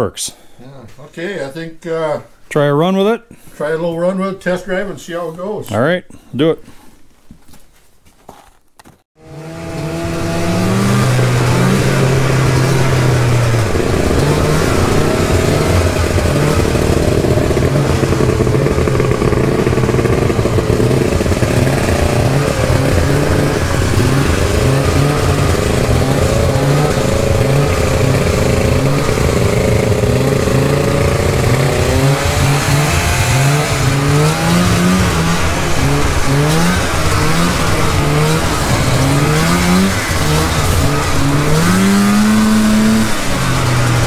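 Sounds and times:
snowmobile engines running: 9.2 - 44.0.

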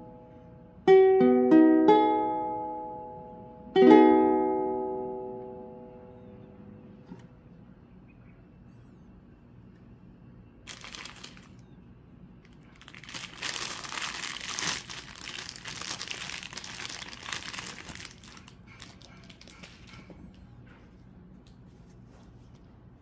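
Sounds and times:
plastic packaging crinkling: 10.6 - 11.7, 12.4 - 20.1.

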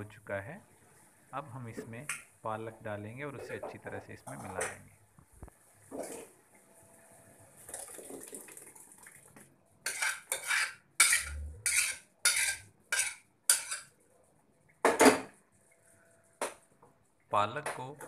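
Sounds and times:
metal spoon scraping a pot: 9.8 - 13.9.

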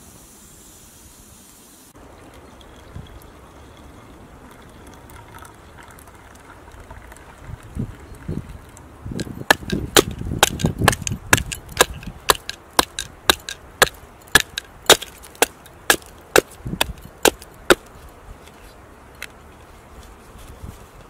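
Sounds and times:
hatchet chopping wood: 9.2 - 17.9.

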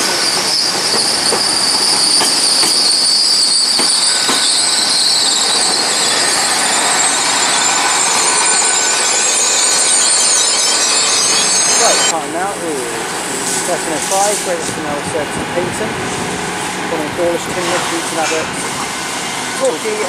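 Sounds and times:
train wheels squealing on rails: 0.0 - 12.2, 17.2 - 20.0
train running noise: 0.0 - 20.0.

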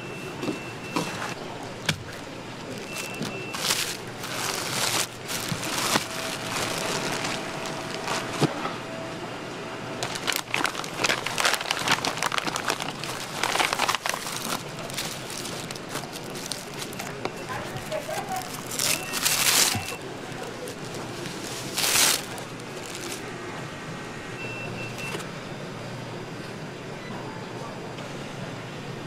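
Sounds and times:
packaging crackling and crinkling: 2.7 - 8.5, 10.0 - 23.3
plastic wrappers peeled open: 2.7 - 8.5, 10.0 - 23.3.

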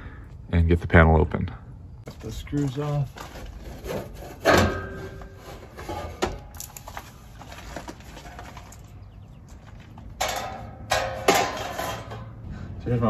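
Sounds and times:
metal cover scraping: 3.2 - 6.6, 10.2 - 12.4
metal cover knocks and clicks: 10.2 - 12.2.

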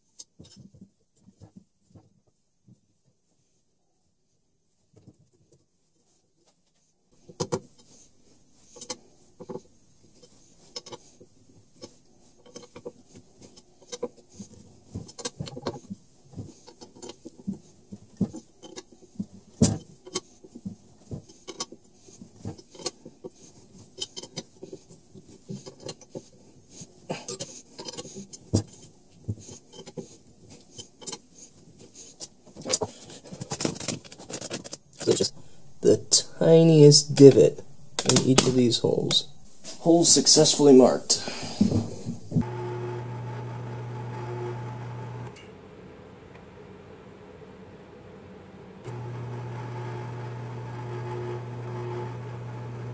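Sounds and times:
handling noise: 31.8 - 42.5.

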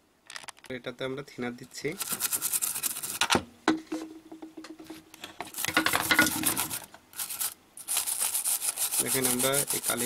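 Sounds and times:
cotton wad scrubbing circuit board: 5.5 - 10.0.

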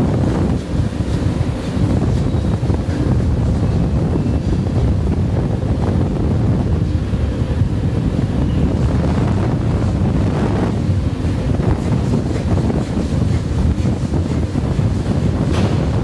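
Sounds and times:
air jets rushing: 0.0 - 16.0.

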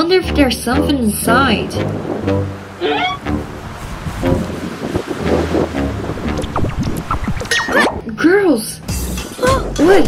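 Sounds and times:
background music with bass line: 0.0 - 10.0.

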